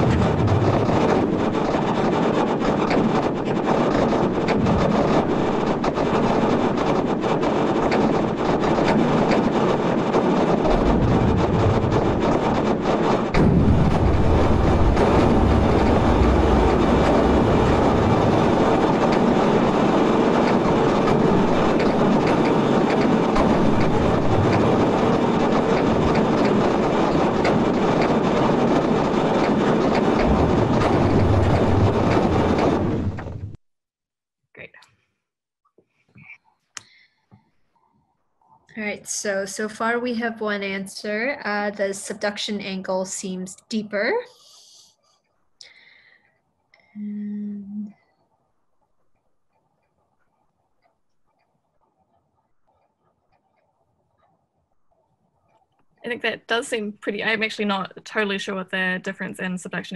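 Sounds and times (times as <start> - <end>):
continuous rumble: 0.0 - 33.6, 37.7 - 45.0, 45.6 - 59.9
dense crackle of clicks: 0.0 - 33.6, 47.9 - 59.9.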